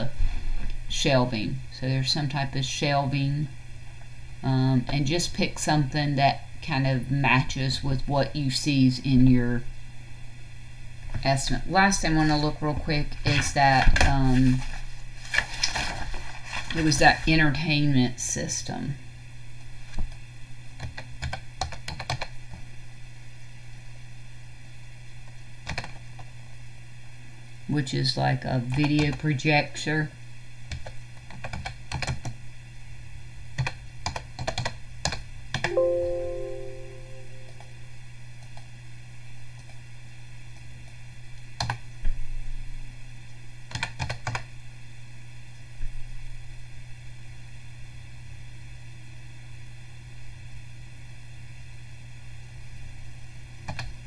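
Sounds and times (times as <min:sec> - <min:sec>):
typing on computer keyboard: 0:20.8 - 0:22.3, 0:25.6 - 0:26.0, 0:30.7 - 0:32.4, 0:33.6 - 0:35.7, 0:41.6 - 0:41.8, 0:43.7 - 0:44.5, 0:53.7 - 0:53.9.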